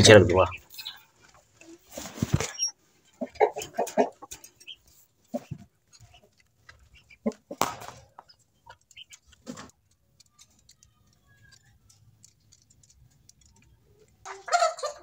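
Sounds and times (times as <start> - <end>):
faint bird chirps: 0.4 - 1.1
light clicks and knocks at cage: 7.8 - 14.3.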